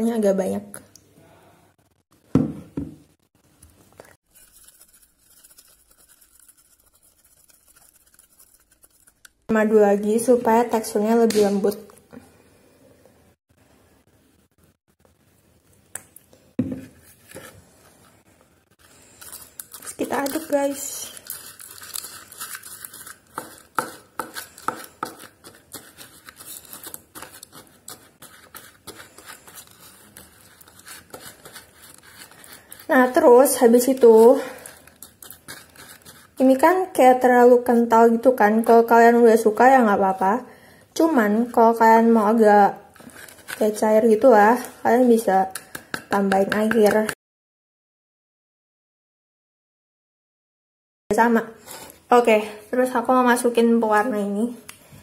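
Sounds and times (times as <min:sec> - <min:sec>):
spoon scraping sugar in bowl: 0:04.3 - 0:09.3, 0:19.1 - 0:36.8
spoon scraping and tapping bowl: 0:23.3 - 0:25.8.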